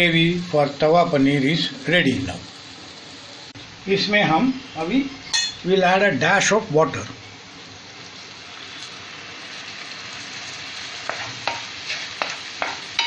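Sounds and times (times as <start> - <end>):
gravy sizzling in a frying pan: 0.0 - 13.0
spatula scraping and tapping: 11.0 - 13.0.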